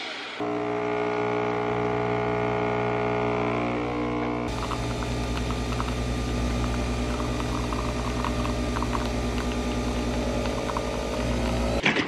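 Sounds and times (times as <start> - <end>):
coffee machine motor hum: 0.4 - 11.8
coffee streaming into steel cup: 4.5 - 11.8.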